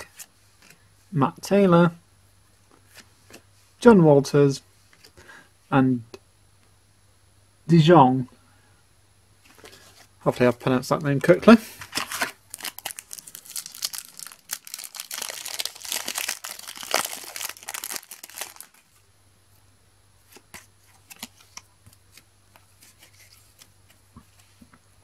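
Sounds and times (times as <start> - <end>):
foil wrapper crinkling and tearing: 11.9 - 18.9.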